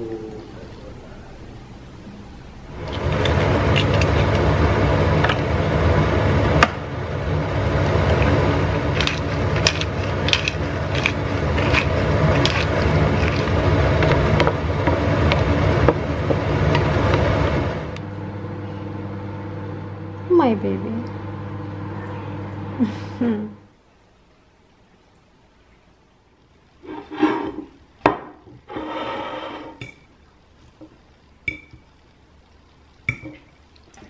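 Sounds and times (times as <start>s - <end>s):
eggs sizzling in a pan: 2.7s - 18.6s, 26.2s - 34.0s.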